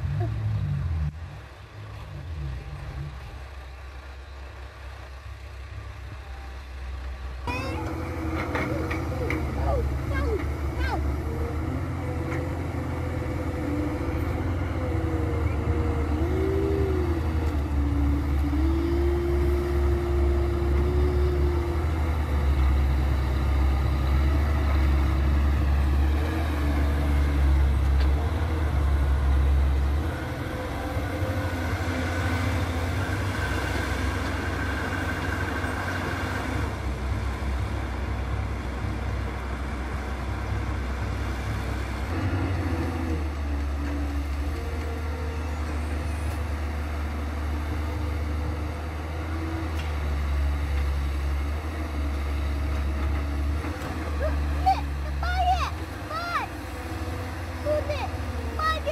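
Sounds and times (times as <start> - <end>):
excavator diesel engine running: 0.0 - 58.9
hydraulics whining: 0.0 - 58.9.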